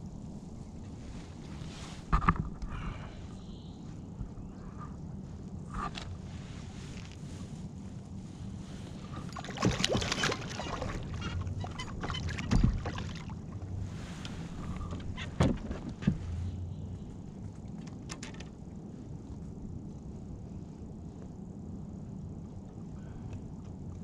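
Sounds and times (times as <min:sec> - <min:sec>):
fish splashing in water: 0:09.3 - 0:13.4.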